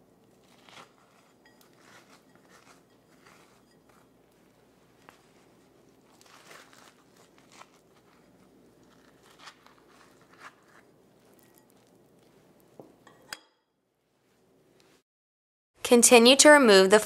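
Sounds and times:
spoon scraping squash: 0:00.0 - 0:13.4.

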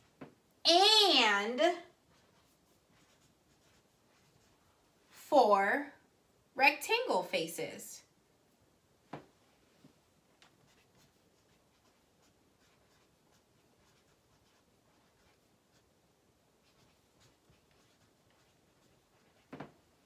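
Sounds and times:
marker scratching on paper: 0:01.5 - 0:04.8, 0:10.4 - 0:15.9, 0:16.6 - 0:20.0.

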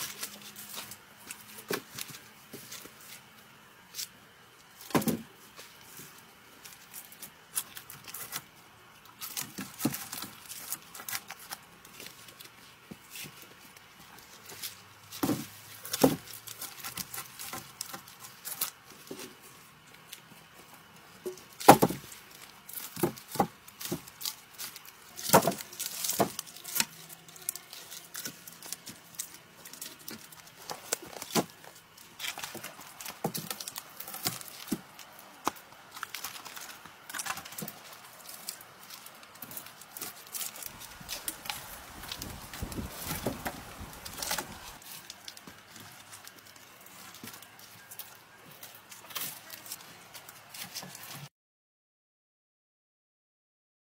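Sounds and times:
leafy branches rustling: 0:00.0 - 0:51.3
wooden poles knocking together: 0:21.2 - 0:22.1, 0:25.2 - 0:26.9, 0:40.7 - 0:44.8.

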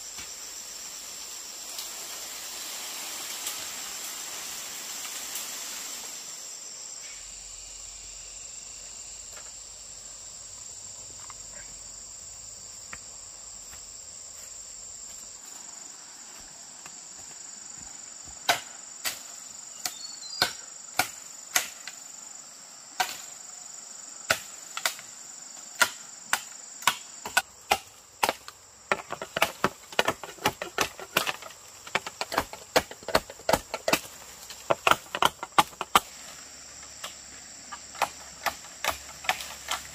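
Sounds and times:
high-pitched insect drone: 0:00.0 - 0:24.2.

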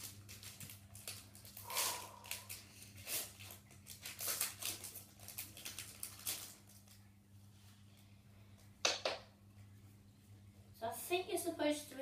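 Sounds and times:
foil wrapper tearing and crinkling: 0:00.0 - 0:07.0.

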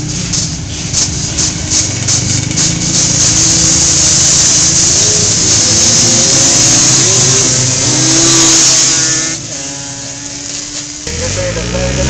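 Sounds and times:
atv engine accelerating: 0:00.0 - 0:12.0.

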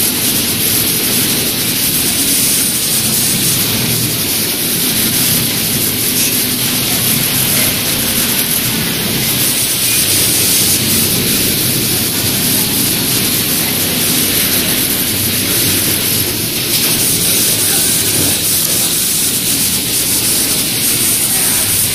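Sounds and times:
sewing factory machine noise: 0:00.0 - 0:21.9.

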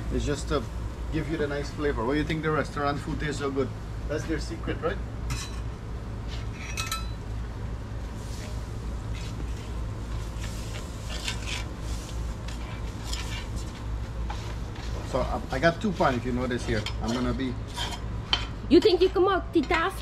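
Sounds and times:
metal spatula scraping griddle: 0:08.2 - 0:15.2, 0:15.8 - 0:18.5.

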